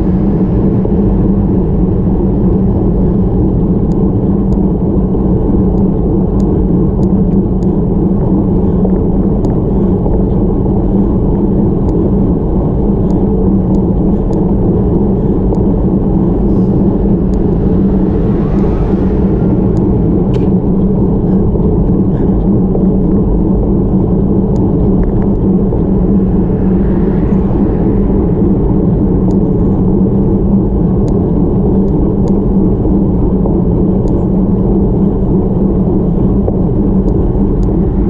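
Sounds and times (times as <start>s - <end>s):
wind and road rumble: 0.0s - 38.0s
sharp ticks: 13.0s - 14.5s.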